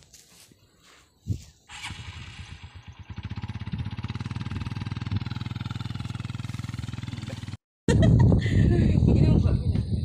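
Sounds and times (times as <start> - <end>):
motorcycle engine running: 1.7 - 7.6.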